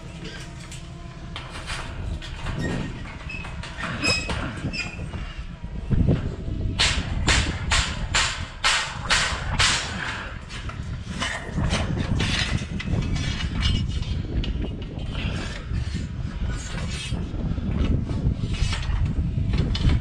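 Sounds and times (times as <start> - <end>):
steel panels clanking: 0.0 - 5.4
steady low rumble: 0.0 - 20.0.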